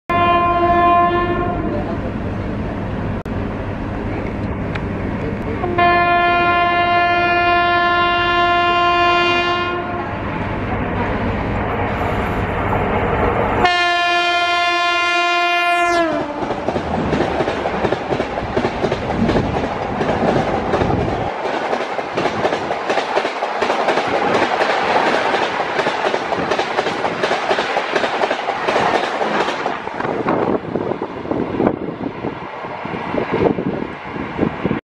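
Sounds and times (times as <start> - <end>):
locomotive horn blasts: 0.1 - 1.7, 5.6 - 10.2, 13.6 - 16.5
moving train running noise: 0.1 - 34.8
train coaches rattling past: 0.1 - 34.8.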